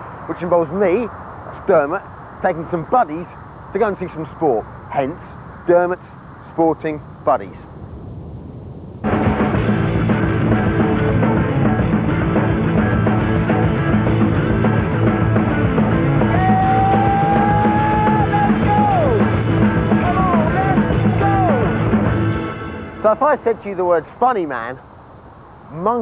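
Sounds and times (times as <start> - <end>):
sliding lead guitar line: 9.0 - 23.2
rock music: 9.0 - 23.3.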